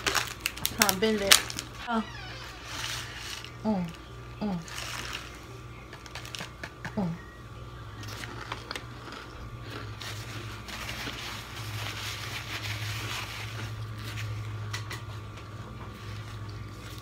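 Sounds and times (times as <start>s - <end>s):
steady low hum: 0.0s - 17.0s
chewing food: 8.0s - 11.5s, 13.0s - 17.0s
paper napkin and plate rustling: 10.0s - 15.3s.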